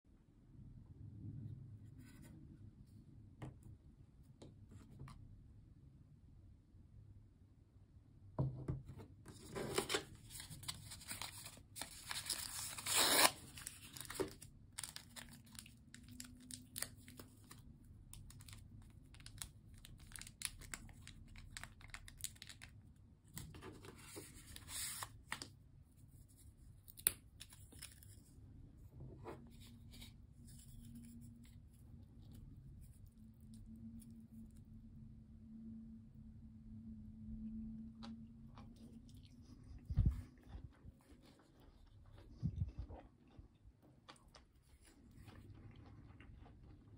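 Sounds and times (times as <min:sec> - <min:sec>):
plastic packet tearing and crinkling: 0:09.7 - 0:22.8.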